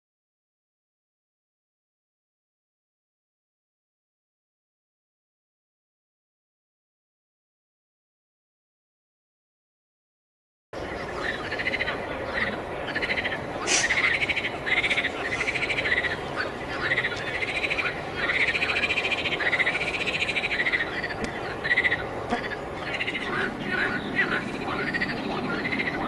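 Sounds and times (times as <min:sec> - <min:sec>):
frog chorus trilling: 0:10.8 - 0:26.0.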